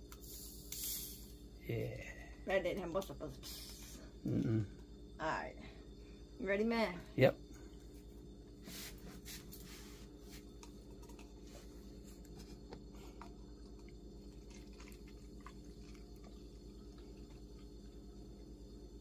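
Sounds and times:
soda fizzing and crackling: 0.0 - 1.3, 13.6 - 19.0
steady low hum: 0.0 - 19.0
soda pouring into plastic cup: 13.8 - 18.5.

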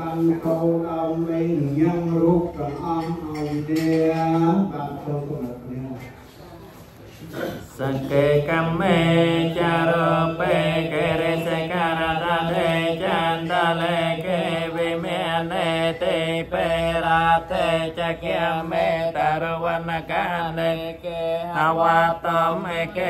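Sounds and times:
voices chanting: 7.7 - 23.0.

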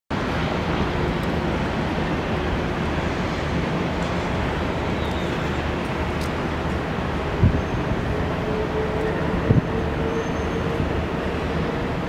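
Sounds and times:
wind: 0.1 - 12.0.

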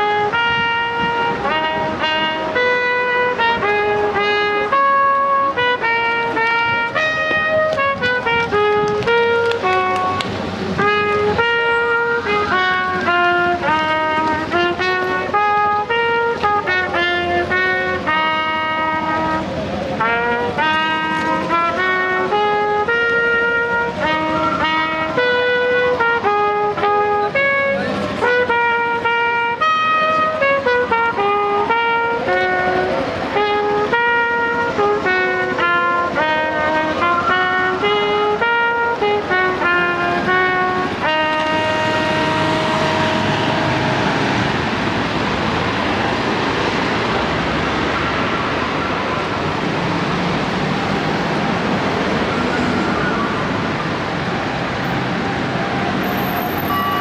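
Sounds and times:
trumpets and trombone playing: 0.0 - 47.1
steady rushing noise: 5.1 - 57.0.

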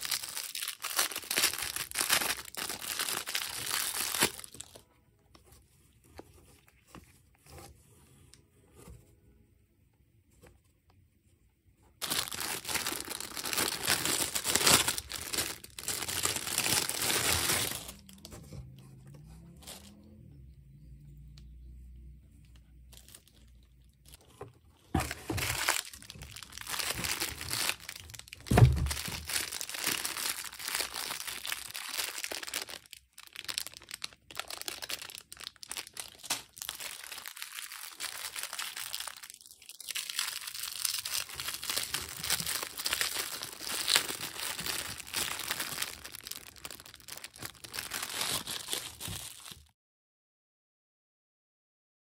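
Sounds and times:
plastic packaging crinkling: 0.0 - 4.8, 12.0 - 20.0, 22.8 - 49.7.

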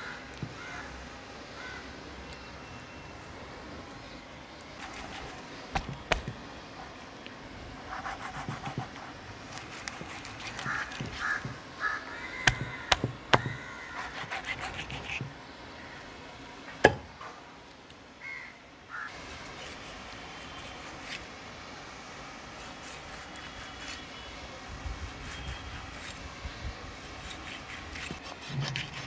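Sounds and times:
knife blade striking wood: 5.8 - 6.4, 12.5 - 13.6.

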